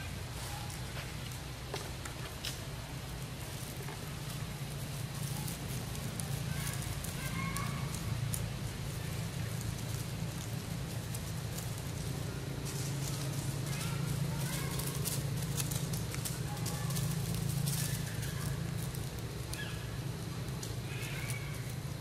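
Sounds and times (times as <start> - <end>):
steady low hum: 0.0 - 22.0
faint clicks and crackles: 0.7 - 22.0.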